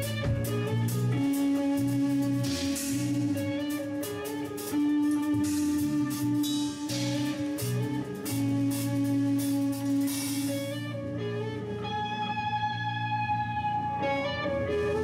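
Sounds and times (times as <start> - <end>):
drums and cymbals: 0.0 - 10.8
ringing electric guitar notes: 0.0 - 15.0.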